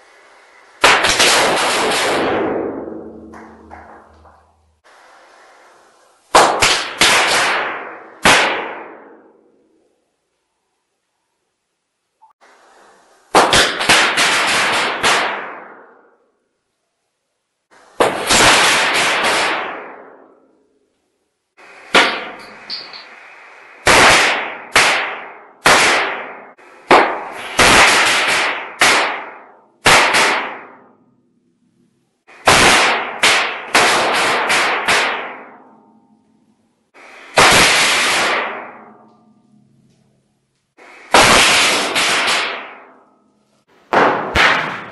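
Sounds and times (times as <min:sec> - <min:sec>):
firecracker bangs echoing: 0:00.8 - 0:04.9, 0:06.3 - 0:09.5, 0:13.3 - 0:16.1, 0:18.0 - 0:20.4, 0:21.6 - 0:31.0, 0:32.3 - 0:36.0, 0:36.9 - 0:39.1, 0:40.8 - 0:43.2, 0:43.9 - 0:44.9.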